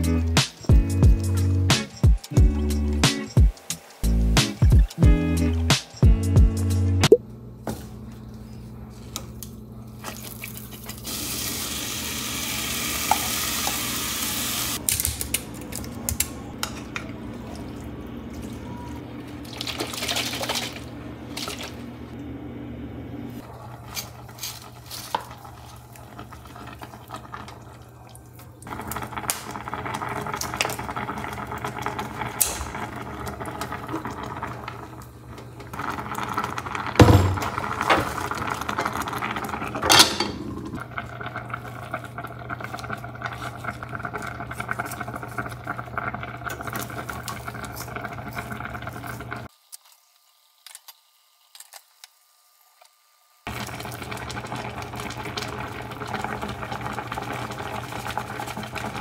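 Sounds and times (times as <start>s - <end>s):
pot boiling: 9.9s - 14.8s, 15.8s - 22.2s, 23.2s - 51.2s, 53.4s - 59.0s
cutlery and dishes clattering: 39.8s - 40.4s.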